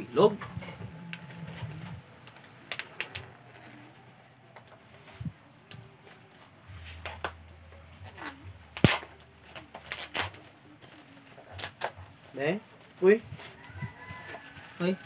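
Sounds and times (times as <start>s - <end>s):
packaging rustling and clicking: 2.2s - 5.0s.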